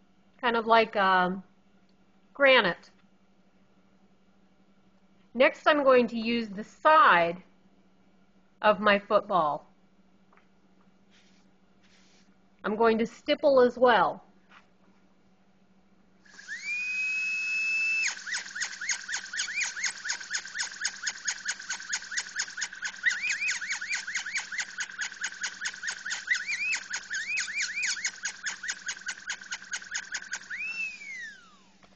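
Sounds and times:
rotary carving tool whine: 16.2 - 31.9.

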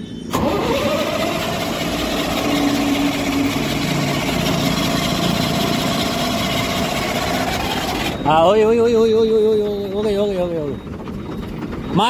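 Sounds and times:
truck starter motor cranking: 0.3 - 8.5.

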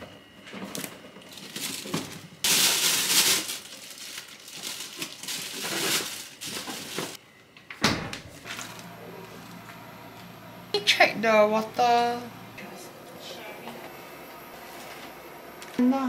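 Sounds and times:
rustling and crinkling: 0.3 - 7.2, 8.3 - 9.8.

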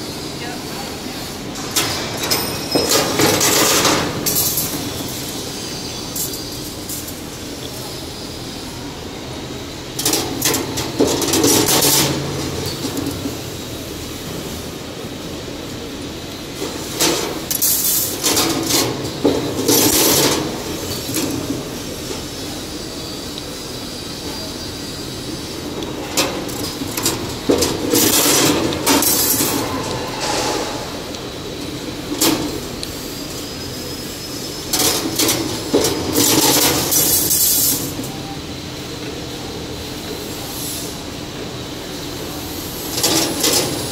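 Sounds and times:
machine humming: 18.5 - 33.0.

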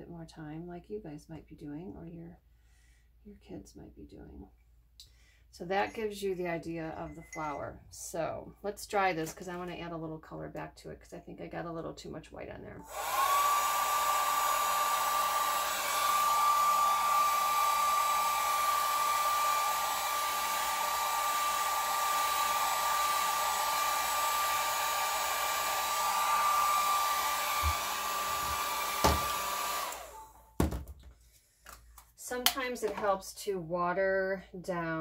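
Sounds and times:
hair dryer blowing: 12.8 - 30.4.

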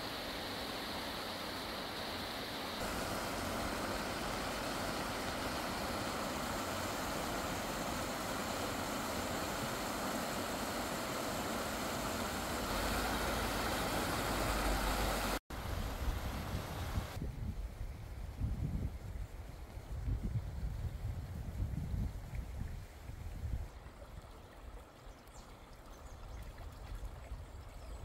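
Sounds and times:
stream flowing over rocks: 0.0 - 15.4.

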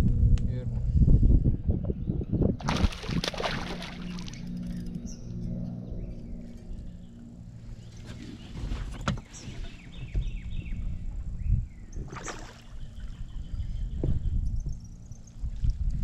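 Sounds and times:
steady low rumble: 0.0 - 16.0
fish splashing at surface: 2.6 - 4.4
water slapping against hull: 2.6 - 4.6, 12.0 - 13.0.

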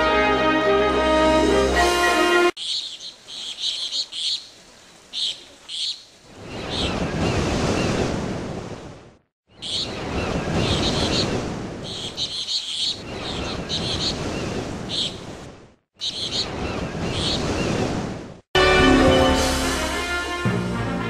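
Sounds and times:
orchestral music: 0.0 - 2.6, 18.6 - 21.0.

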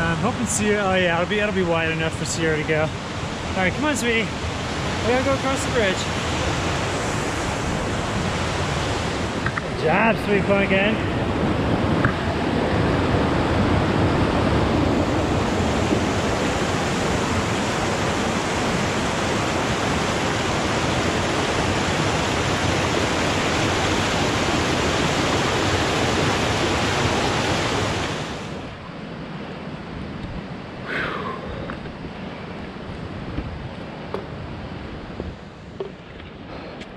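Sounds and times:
creek rushing over boulders: 0.0 - 28.8.

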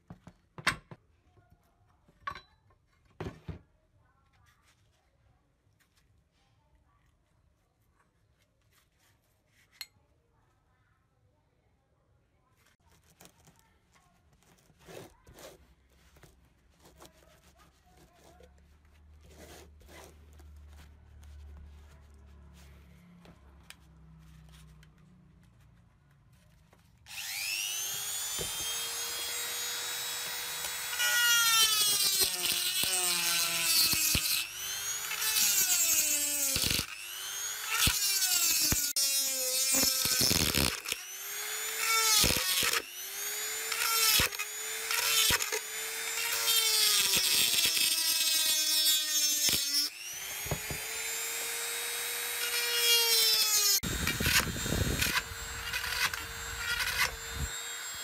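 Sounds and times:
rotary tool motor whine: 27.1 - 58.0
grinding rasp on metal: 27.2 - 58.0.

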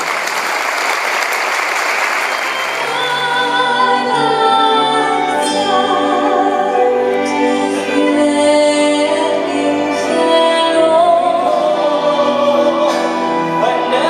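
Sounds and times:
strings and piano: 2.3 - 14.0
soprano singing operatically: 2.5 - 14.0.

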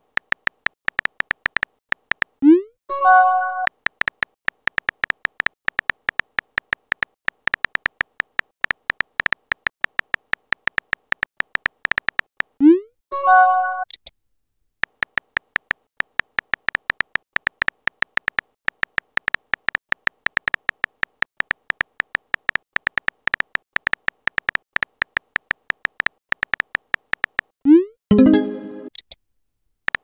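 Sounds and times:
keyboard tap clicks: 0.2 - 2.4, 3.9 - 12.5, 14.8 - 27.5.

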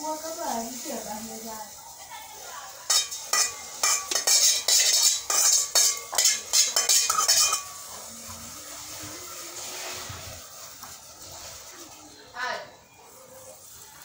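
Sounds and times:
metal spoon scraping a pot: 2.9 - 10.7.

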